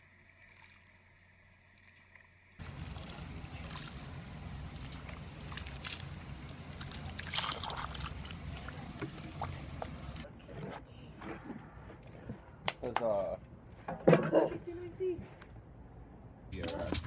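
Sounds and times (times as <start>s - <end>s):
liquid pouring and sloshing: 1.8s - 10.2s
small splashes: 1.8s - 10.2s.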